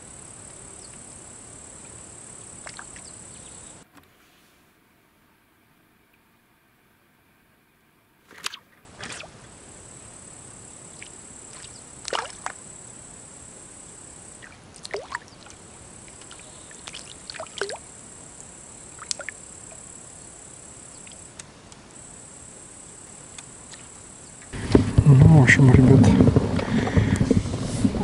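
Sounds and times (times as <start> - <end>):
high-pitched insect drone: 9.2 - 21.4, 22.0 - 24.6.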